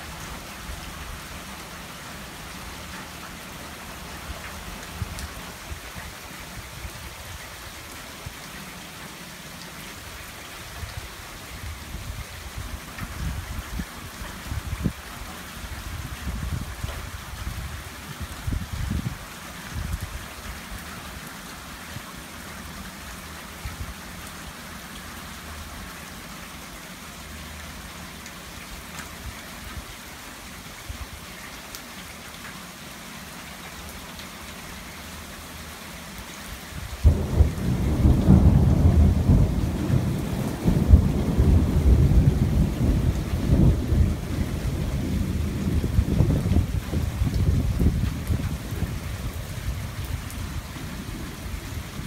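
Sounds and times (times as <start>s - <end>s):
rain falling steadily: 0.0s - 52.0s
thunder rumbling: 37.0s - 52.0s.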